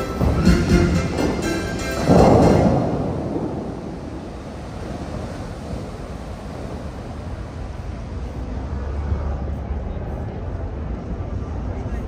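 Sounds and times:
fountain water crashing down: 0.0 - 9.2
low wash of water: 0.0 - 12.0.

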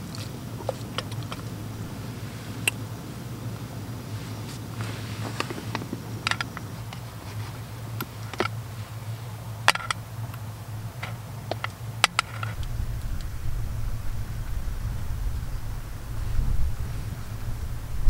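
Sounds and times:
wind rumble on microphone: 0.0 - 8.8, 12.2 - 18.0
gas stove hum: 0.0 - 18.0
pot clicking on metal stove supports: 11.0 - 12.6.

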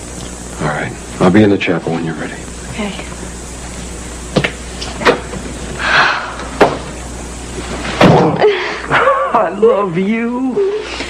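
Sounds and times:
door thump: 8.0 - 8.4.

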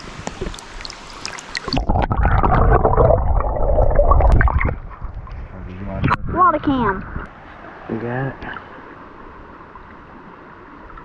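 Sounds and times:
underwater gurgling: 0.0 - 6.6.

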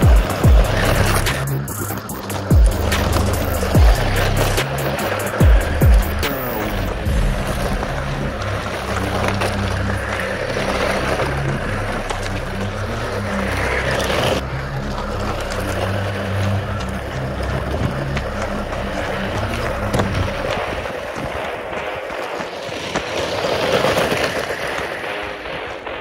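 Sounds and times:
low electric drivetrain hum: 0.0 - 26.0
tyres crunching on gravel: 0.0 - 26.0.

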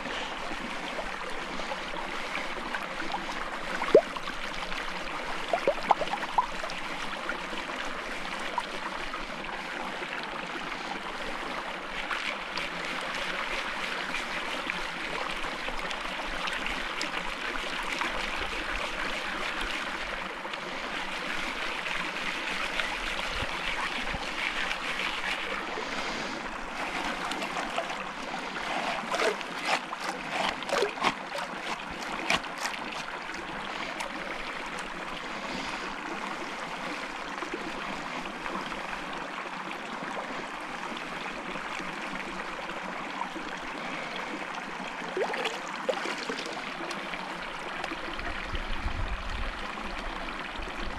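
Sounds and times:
creek water running: 0.0 - 50.9
gold pan swirled in water: 22.3 - 33.2.

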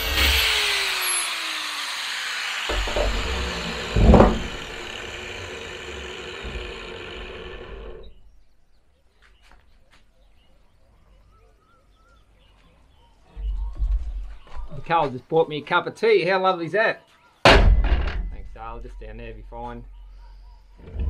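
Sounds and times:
angle grinder whining: 0.0 - 8.2
loud clunk: 2.7 - 4.9, 17.4 - 18.5.

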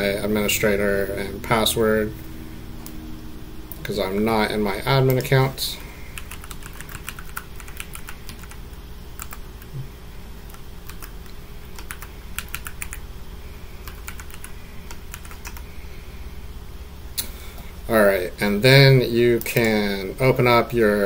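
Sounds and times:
keyboard typing: 6.0 - 9.8, 10.4 - 13.0, 13.8 - 15.7.

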